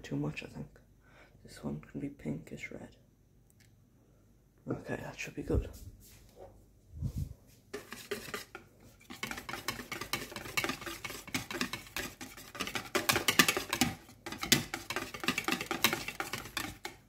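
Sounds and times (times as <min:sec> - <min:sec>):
whisk beating batter in a bowl: 0:07.7 - 0:17.0.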